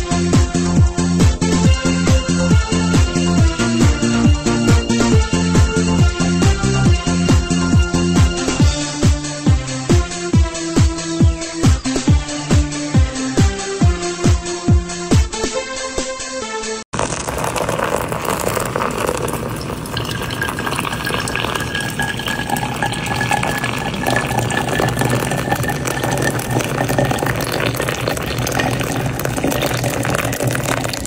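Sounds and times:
water pouring from kettle: 17.0s - 31.0s.

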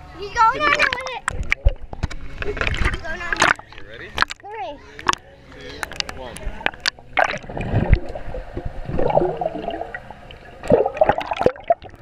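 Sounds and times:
muffled underwater water gurgling: 6.0s - 12.0s.

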